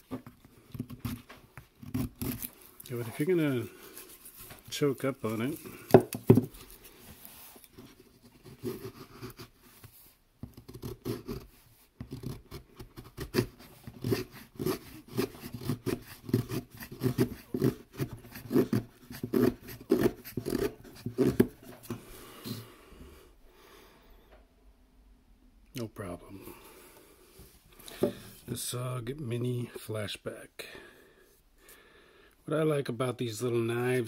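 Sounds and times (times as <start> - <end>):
knife scraping wood: 0.1 - 22.6.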